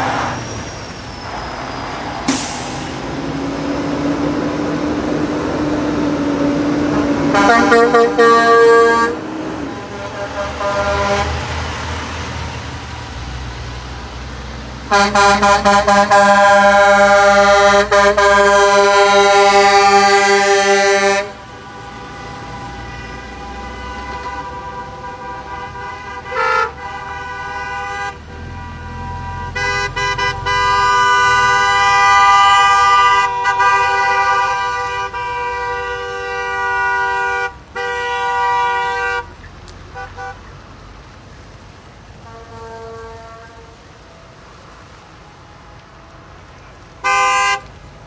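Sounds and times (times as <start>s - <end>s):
engine and road noise: 0.0s - 48.0s
truck air horn: 2.3s - 3.2s, 6.8s - 11.7s, 14.9s - 39.3s, 39.9s - 40.5s, 42.2s - 44.0s, 47.0s - 47.7s
vehicle horns honking: 6.9s - 11.6s, 14.9s - 39.3s, 39.9s - 40.5s, 42.2s - 43.8s, 47.0s - 47.7s.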